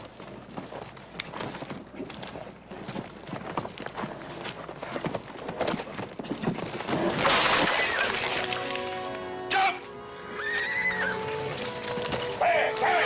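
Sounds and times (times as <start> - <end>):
horse hooves clattering: 0.0 - 9.3, 10.4 - 13.0.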